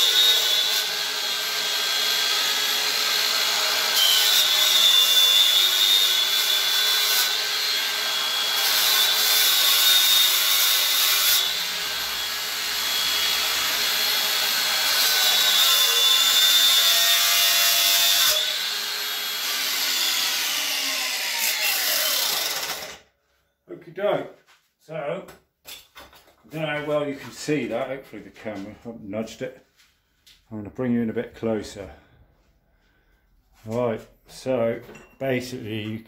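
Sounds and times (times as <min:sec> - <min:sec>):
angle grinder cutting wood: 0:00.0 - 0:23.0.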